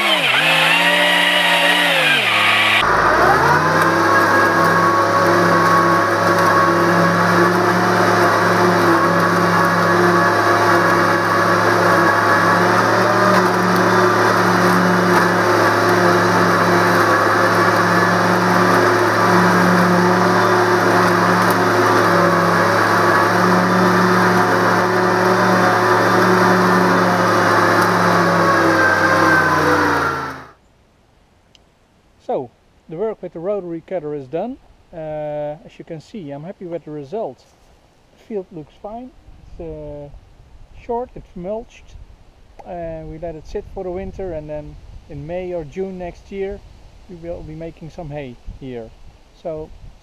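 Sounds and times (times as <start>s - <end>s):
rotary cutter mulching grass: 0.0s - 30.6s
tractor diesel engine running: 0.0s - 30.6s.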